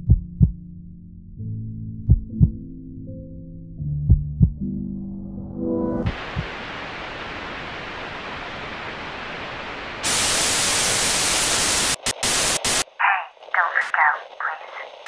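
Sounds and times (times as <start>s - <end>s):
electronic static hiss: 6.1s - 15.0s.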